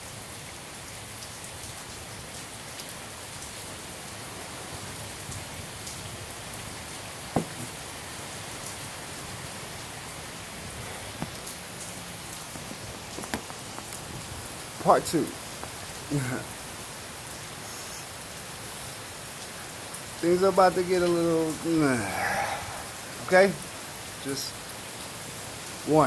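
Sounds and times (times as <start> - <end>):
steady rain falling: 0.0 - 26.0
drips and ticks: 10.0 - 26.0.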